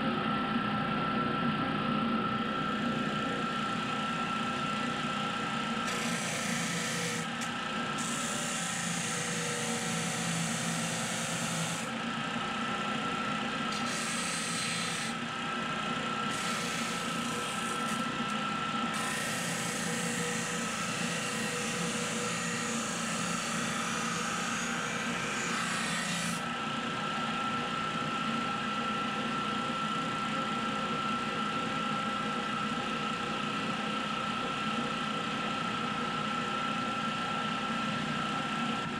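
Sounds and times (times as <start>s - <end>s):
disc sander running: 0.0s - 38.9s.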